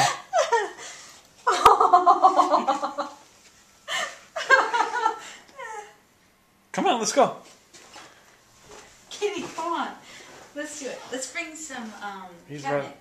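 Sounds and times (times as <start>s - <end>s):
people laughing: 1.5s - 3.2s, 3.9s - 5.4s.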